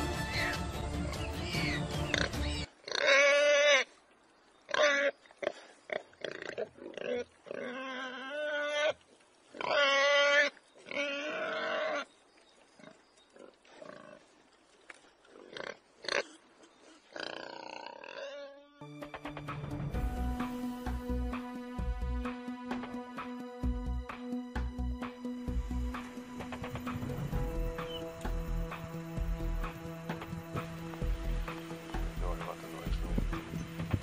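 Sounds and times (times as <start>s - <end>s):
warthog squealing: 6.3s - 9.0s, 9.6s - 12.1s.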